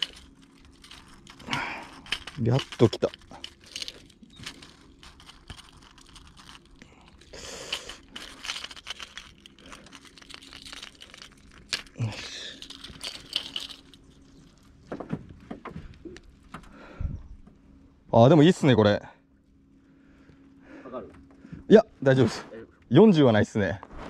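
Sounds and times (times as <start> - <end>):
hands rustling and clicking: 0.0 - 16.6.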